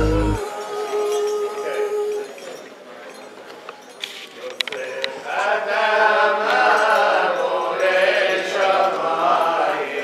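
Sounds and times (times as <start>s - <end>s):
congregation singing a chant: 5.2s - 10.0s.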